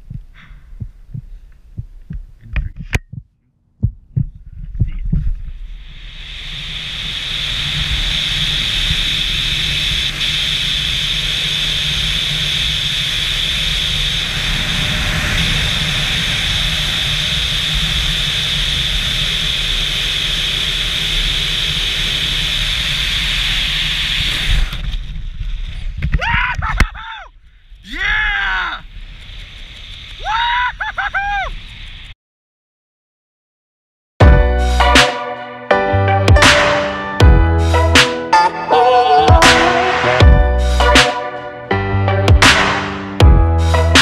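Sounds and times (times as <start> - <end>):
wind rushing over microphone: 3.8 - 32.2.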